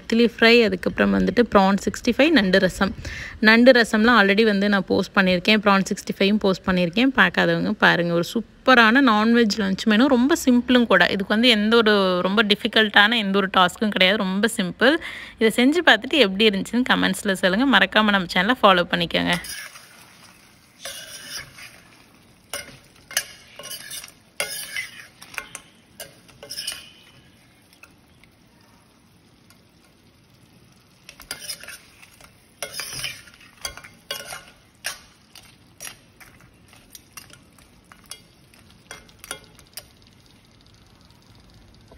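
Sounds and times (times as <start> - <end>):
low sizzle: 0.0 - 41.9
metal ladle scraping pan: 19.3 - 28.0, 31.0 - 40.0.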